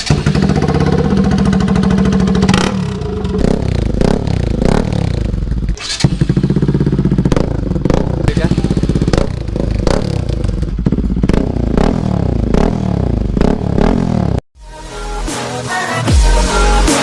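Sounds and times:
motorcycle engine revving: 0.0s - 14.4s.

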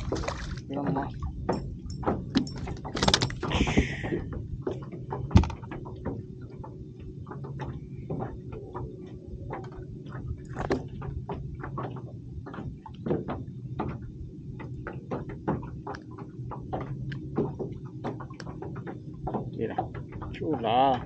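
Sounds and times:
steady low hum: 0.0s - 21.0s
knocks and clicks of handling: 4.4s - 20.4s.

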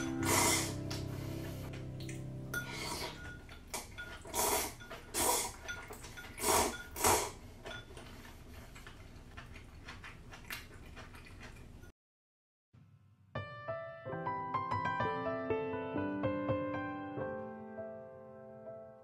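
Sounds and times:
slurping from a bowl: 0.0s - 1.5s, 2.6s - 11.8s
mouth chewing sounds: 0.1s - 11.9s
bowl and chopstick sounds: 2.0s - 11.9s.

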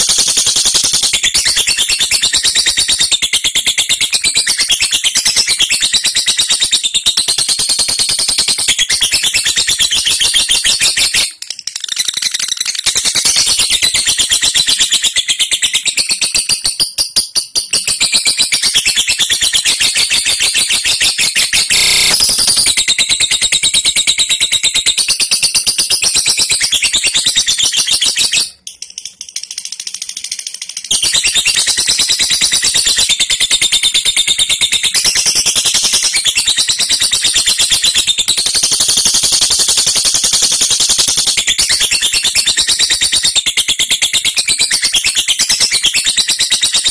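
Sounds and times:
lovebird chattering: 8.8s - 23.4s, 26.0s - 33.6s.

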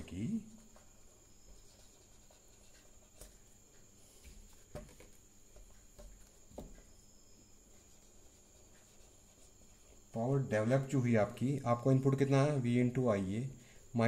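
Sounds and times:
faint high whine: 0.0s - 14.0s
soft taps: 4.2s - 6.9s.

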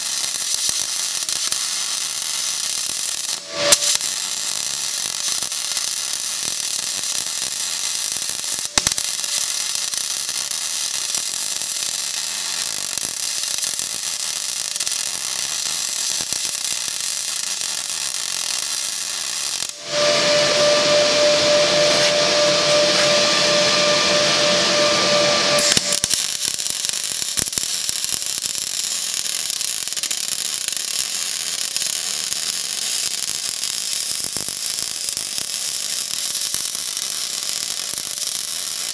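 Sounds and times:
welding arc buzzing: 0.0s - 38.9s.

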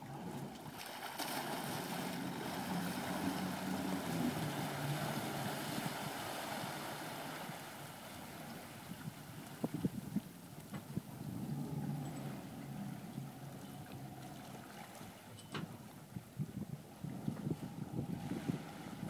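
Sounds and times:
boat engine hum: 0.0s - 19.0s
water noise: 0.0s - 19.0s
wind noise: 8.5s - 19.0s.

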